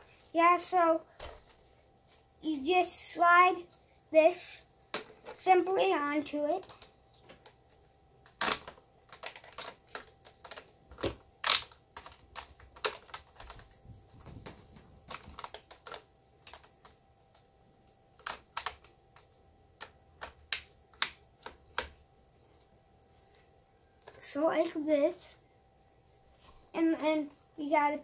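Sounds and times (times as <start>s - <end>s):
plastic toy parts clicking: 8.2s - 13.2s, 15.1s - 16.8s, 18.2s - 21.9s.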